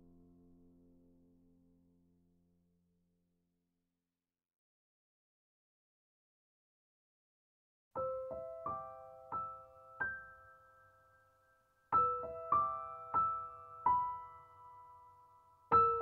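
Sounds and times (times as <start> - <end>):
gentle solo piano: 8.0 - 16.0.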